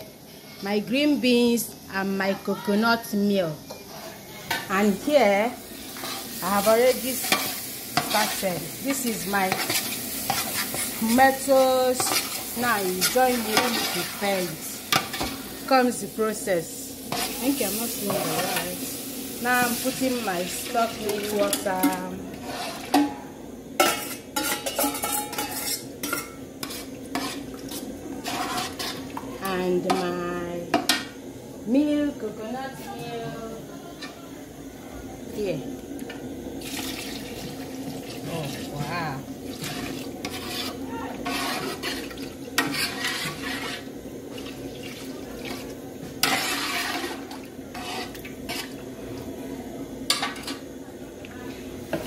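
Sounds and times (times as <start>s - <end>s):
spoon scraping metal pot: 12.0s - 12.4s, 23.8s - 29.2s, 39.6s - 43.9s, 46.2s - 48.8s.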